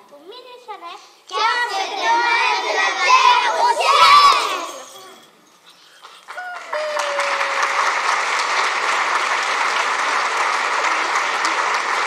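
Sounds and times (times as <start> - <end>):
audience applause: 6.1 - 12.0
long held cry: 6.3 - 8.0.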